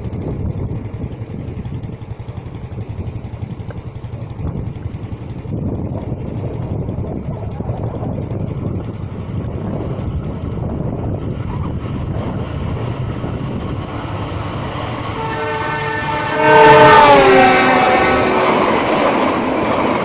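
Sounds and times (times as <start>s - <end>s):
carriages running past: 0.0s - 20.0s
diesel locomotive rumbling: 0.0s - 20.0s
multi-tone train horn: 14.0s - 19.6s.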